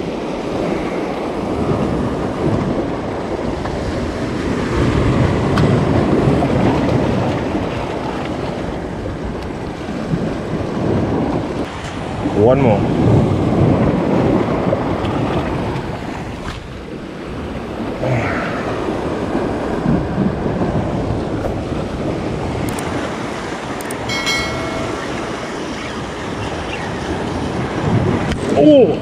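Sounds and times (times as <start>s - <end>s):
sea waves washing over rocks: 0.0s - 29.0s
wind buffeting microphone: 0.0s - 29.0s
short ringing bell tone: 24.0s - 26.1s.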